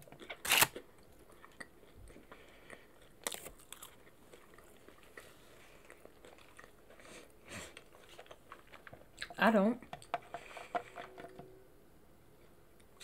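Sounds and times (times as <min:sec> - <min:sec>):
soft chewing and mouth clicks: 0:00.1 - 0:11.1
loud crunchy bite: 0:00.2 - 0:00.8.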